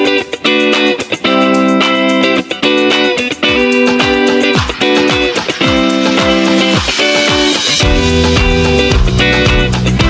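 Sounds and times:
background music with guitar and drums: 0.0s - 10.0s
deep loud bass: 7.8s - 10.0s.

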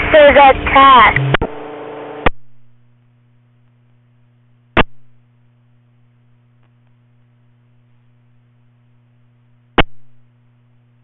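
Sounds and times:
radio static hiss: 0.0s - 5.2s
low mains hum: 0.0s - 11.0s
static crackle: 0.0s - 11.0s.

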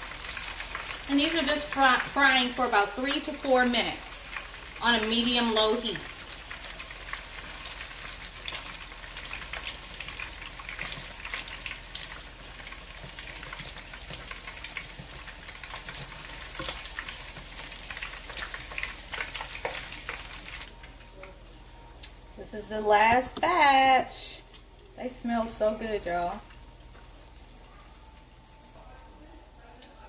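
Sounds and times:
food deep-frying in hot oil: 0.0s - 21.6s.

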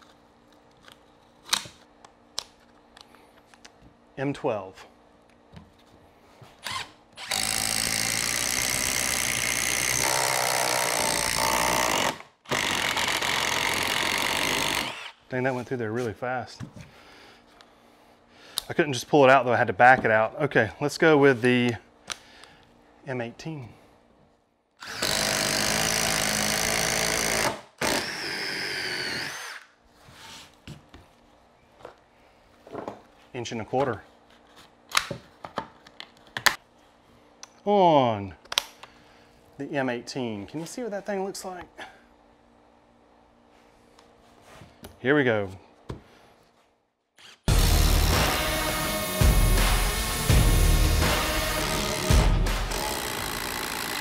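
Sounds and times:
cordless drill whirring: 6.6s - 15.2s, 24.8s - 29.7s, 47.5s - 54.0s.

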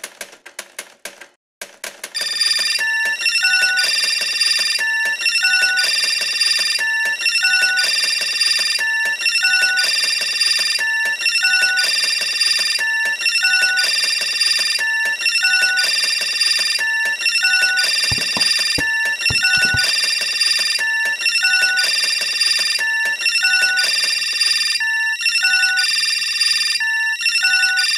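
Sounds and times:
low knocks: 18.1s - 19.9s.

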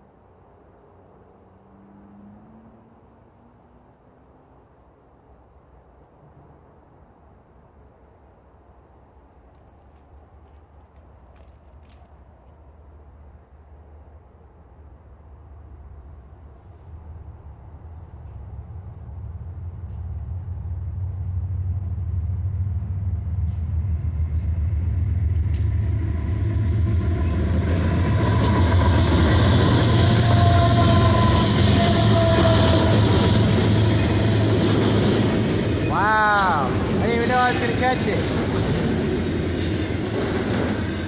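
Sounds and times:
diesel locomotive engine rumble: 4.6s - 41.0s
train wheels on rails: 16.1s - 41.0s
high wheel squeal: 27.2s - 36.2s.

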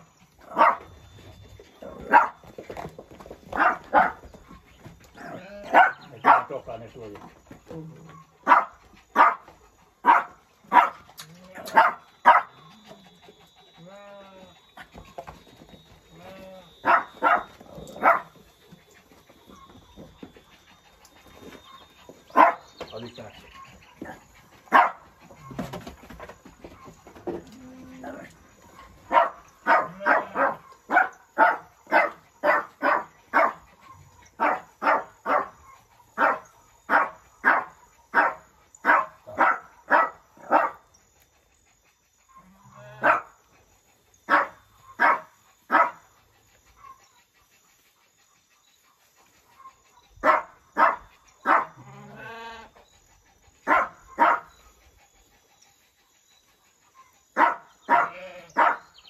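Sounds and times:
dog barking: 0.5s - 0.9s, 2.0s - 2.4s, 3.5s - 4.2s, 5.3s - 6.7s, 8.4s - 12.6s, 16.8s - 18.4s, 22.3s - 22.7s, 24.7s - 25.0s, 29.1s - 33.6s, 34.4s - 35.6s, 36.2s - 40.8s, 43.0s - 43.4s, 44.3s - 46.1s, 50.2s - 51.9s, 53.6s - 54.6s, 57.0s - 58.9s.

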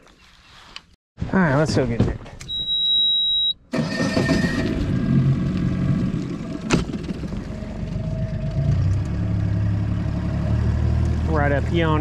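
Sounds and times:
high electronic beep: 2.5s - 3.6s.

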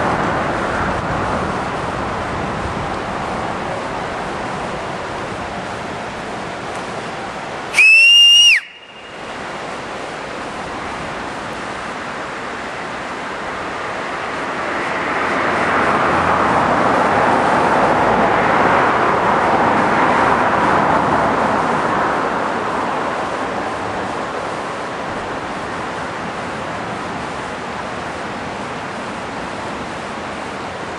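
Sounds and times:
steady rushing noise: 0.0s - 30.9s
high whistle: 7.7s - 9.2s.

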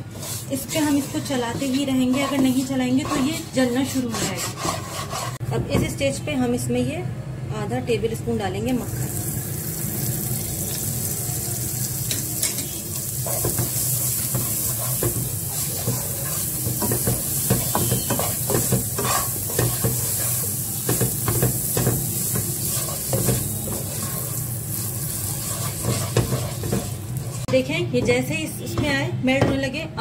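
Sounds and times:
steady sizzle: 0.0s - 3.2s, 8.8s - 27.6s
wooden spatula scraping a pan: 0.0s - 5.4s, 12.6s - 27.6s.

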